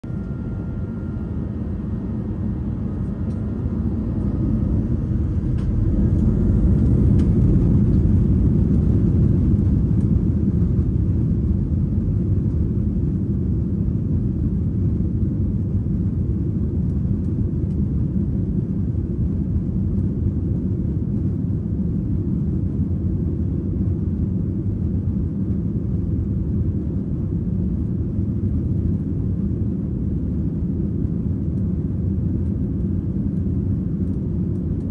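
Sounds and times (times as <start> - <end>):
faint thin whine: 0.0 - 4.9
jet engines rumbling in cabin: 0.0 - 34.9.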